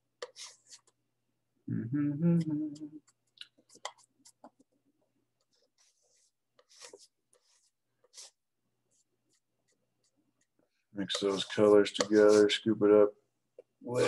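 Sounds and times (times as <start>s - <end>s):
palette knife mixing paint: 0.0s - 1.2s, 3.0s - 12.8s.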